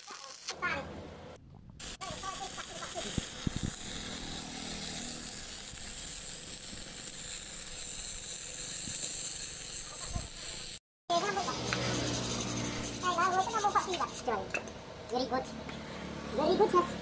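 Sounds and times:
welding arc crackling hiss: 0:00.0 - 0:00.7, 0:01.8 - 0:14.2.

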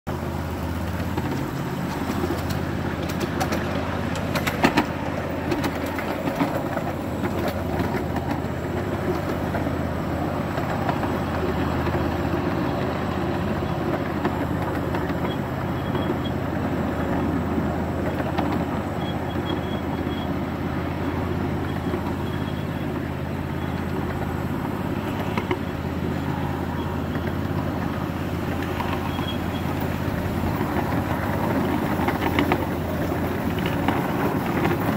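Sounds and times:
model trains rumbling: 0:00.1 - 0:34.9.

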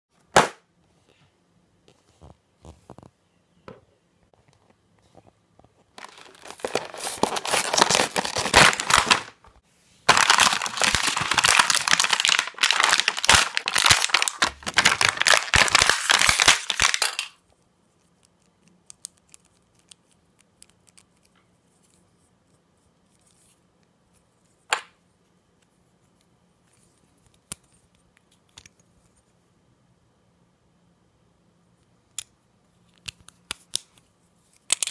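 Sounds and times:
plastic packaging tearing and crinkling: 0:06.0 - 0:09.5, 0:10.1 - 0:17.4
light clicks of toy parts: 0:32.1 - 0:34.9.

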